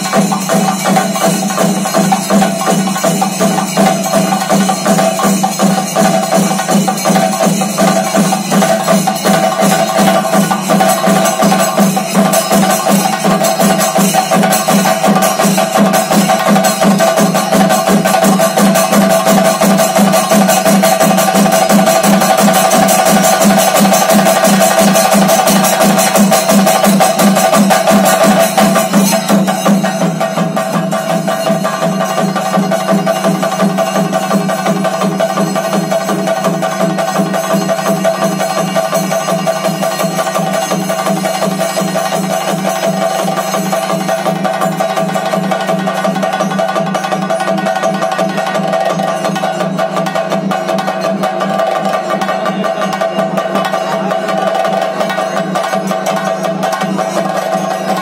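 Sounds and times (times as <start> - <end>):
drums in rapid rolls: 0.0 - 58.0.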